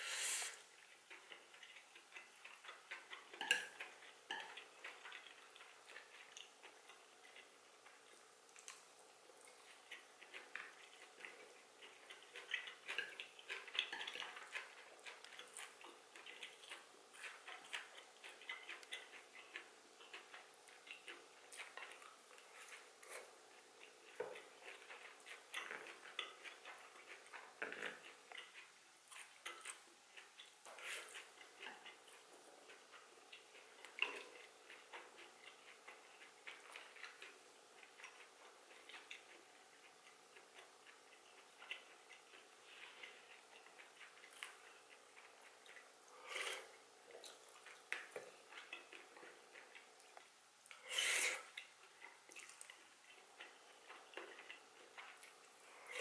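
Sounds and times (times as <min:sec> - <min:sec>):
soft chewing: 0:00.0 - 0:56.0
chopsticks clicking on a plate: 0:01.1 - 0:05.7.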